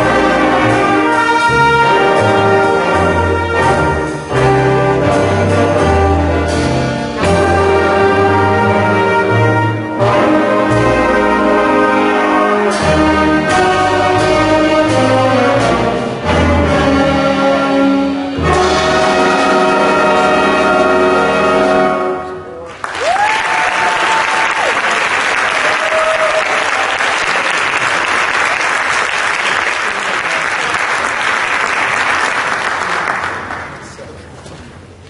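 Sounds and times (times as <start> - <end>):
jazz band chord: 0.0 - 22.6
audience applause: 22.7 - 34.0.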